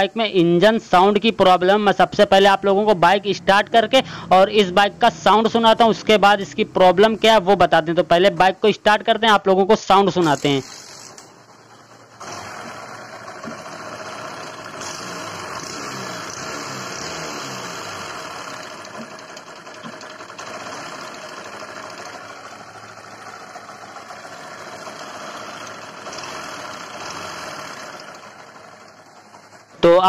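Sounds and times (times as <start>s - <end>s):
motorbike engine clattering rattle: 10.2s - 16.4s, 17.8s - 29.8s.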